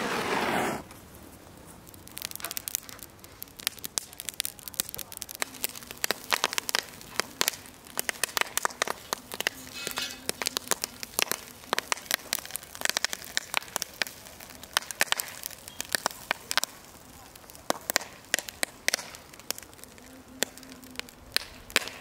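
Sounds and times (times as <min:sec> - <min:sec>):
embers crackling and popping: 0:00.0 - 0:22.0.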